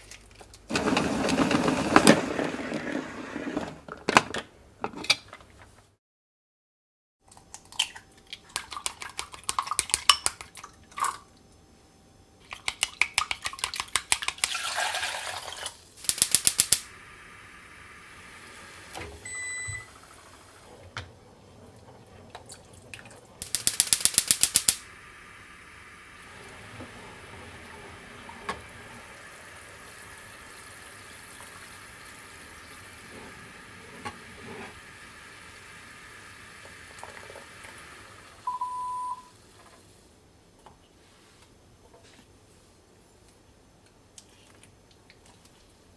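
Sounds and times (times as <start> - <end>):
short beep: 19.2 - 19.9, 38.5 - 39.3
broth simmering in saucepan: 24.8 - 39.6.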